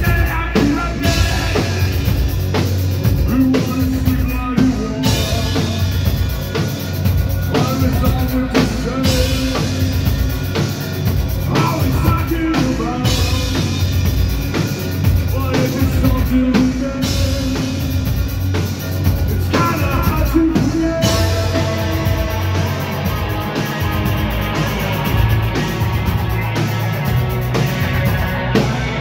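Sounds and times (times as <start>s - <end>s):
person singing: 0.0s - 6.4s, 7.3s - 10.4s, 11.4s - 14.0s, 15.2s - 18.1s, 19.3s - 24.3s
drum kit: 0.0s - 29.0s
electric guitar: 0.0s - 29.0s.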